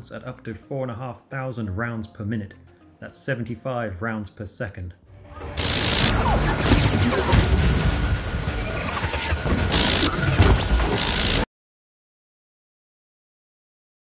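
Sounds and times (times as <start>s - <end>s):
music: 0.0s - 11.4s
blasts and impacts: 5.6s - 11.4s.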